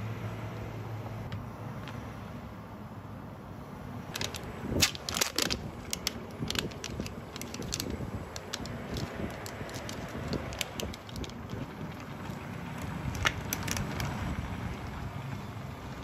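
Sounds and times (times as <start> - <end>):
plastic and foil pack crackling: 4.1 - 14.2.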